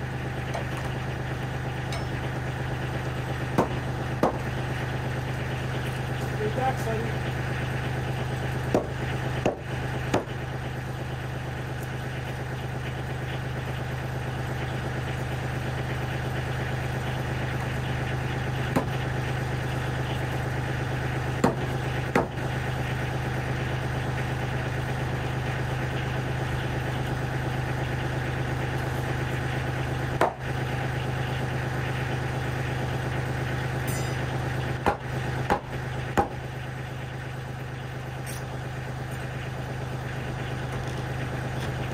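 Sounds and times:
diesel tractor engine idling: 0.0 - 41.9.

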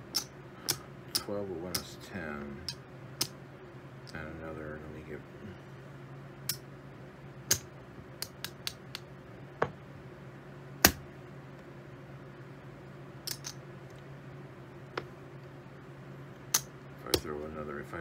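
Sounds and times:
poker chips clicking together: 13.3 - 13.6.

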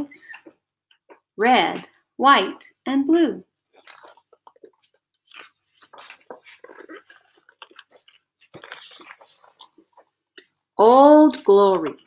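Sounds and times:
book pages turning: 3.8 - 10.7.

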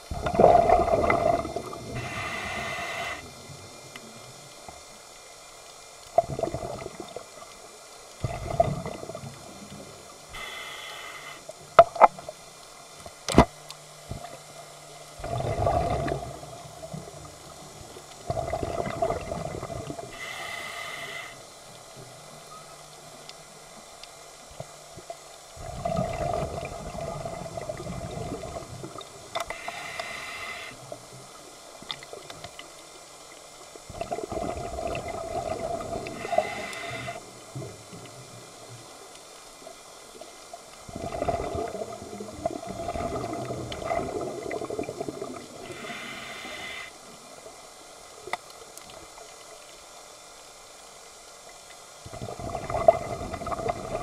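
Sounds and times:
bubbles rushing: 0.1 - 2.0, 6.2 - 7.0, 15.2 - 16.4, 18.3 - 20.1, 25.6 - 28.9, 33.9 - 36.1, 40.9 - 45.6, 52.1 - 54.0
regulator breathing hiss: 1.9 - 3.5, 10.3 - 11.6, 20.1 - 21.6, 29.4 - 31.0, 36.0 - 37.4, 45.6 - 47.2.

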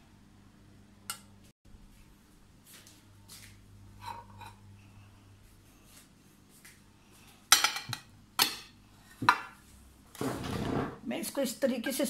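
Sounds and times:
crockery knocking and clinking: 7.5 - 9.6.

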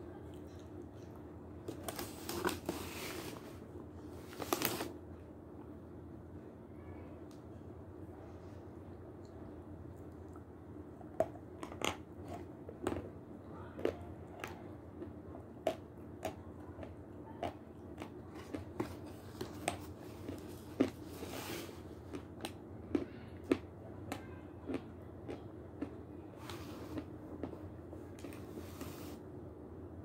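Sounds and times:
low steady hum: 0.0 - 30.0
person eating with lip smacks: 22.1 - 26.0.

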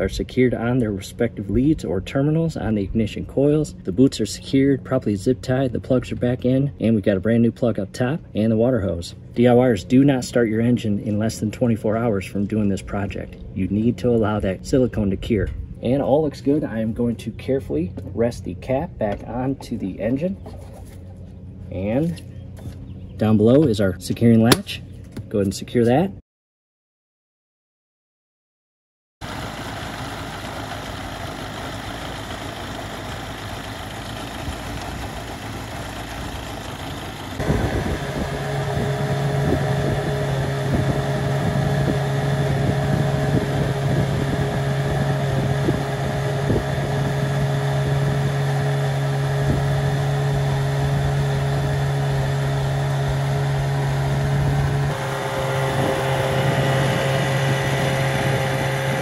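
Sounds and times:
outboard motor drone at high speed: 29.2 - 59.0
outboard motor idling: 29.2 - 59.0.

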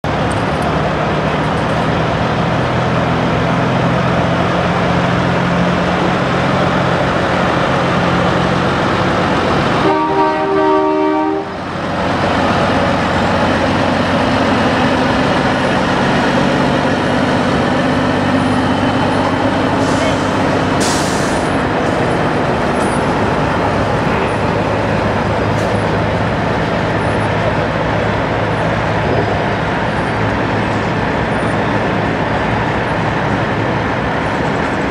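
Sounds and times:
truck diesel engines running: 0.0 - 34.9
truck air horn: 9.8 - 11.6
air hiss: 19.8 - 21.6.

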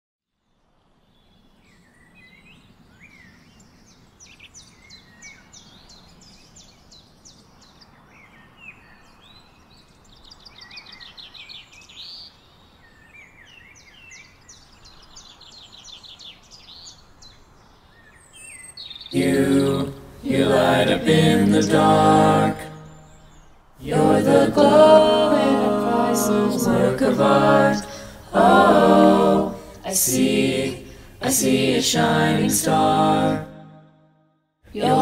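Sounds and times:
faint outdoor background noise: 0.2 - 33.8, 34.6 - 35.0
birds singing and calling: 1.7 - 19.9.

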